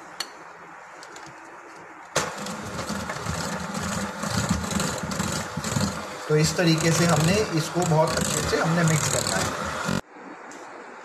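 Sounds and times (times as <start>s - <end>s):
electric hand mixer churning batter: 2.2s - 10.0s.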